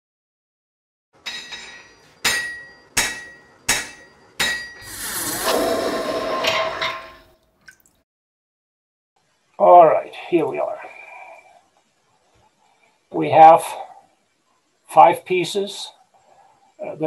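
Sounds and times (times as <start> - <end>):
hammer blows on anvil: 1.2 - 4.9.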